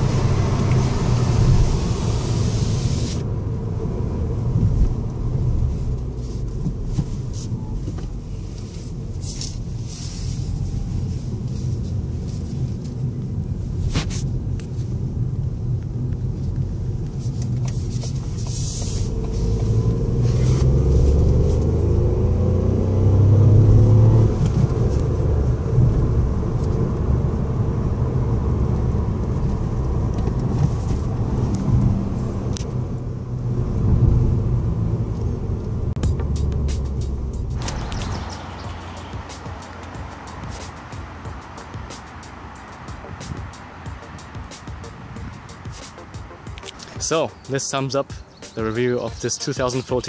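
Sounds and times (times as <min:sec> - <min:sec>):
car engine accelerating: 0:00.0 - 0:48.6
low road rumble: 0:00.0 - 0:50.0.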